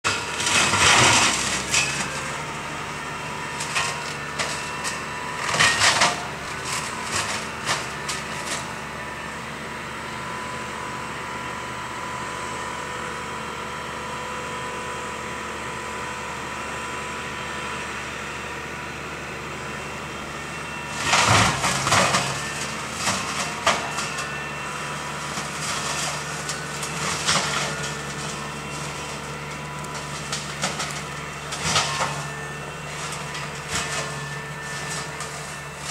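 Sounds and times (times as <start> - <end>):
mechanical motor hum: 20.5 - 35.9.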